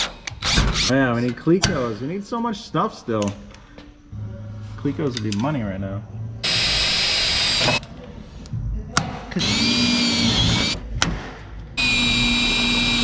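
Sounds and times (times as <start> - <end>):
cordless drill whining through metal: 6.4 - 7.8, 9.4 - 10.8, 11.8 - 13.0.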